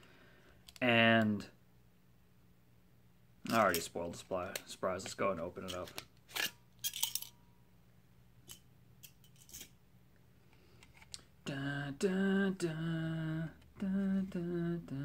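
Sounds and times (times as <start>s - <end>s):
man humming a tune: 11.4s - 15.0s.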